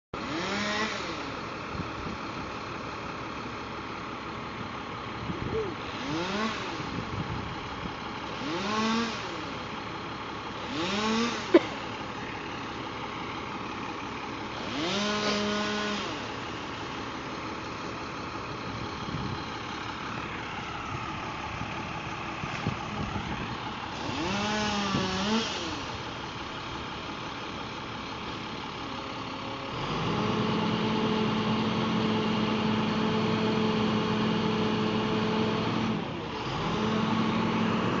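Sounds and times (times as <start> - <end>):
chainsaw revving and cutting: 0.2 - 1.5, 5.8 - 7.0, 8.2 - 9.7, 10.5 - 12.7, 14.5 - 17.1, 23.7 - 26.2, 29.7 - 38.0
low engine idling: 1.2 - 6.0, 6.8 - 8.4, 9.3 - 10.8, 11.4 - 14.7, 16.2 - 24.0, 24.7 - 38.0.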